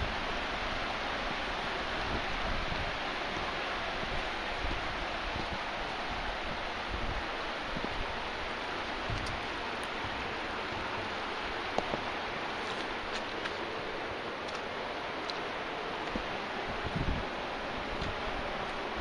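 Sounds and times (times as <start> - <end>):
river water flowing: 0.0 - 19.0
wind buffeting microphone: 0.0 - 19.0.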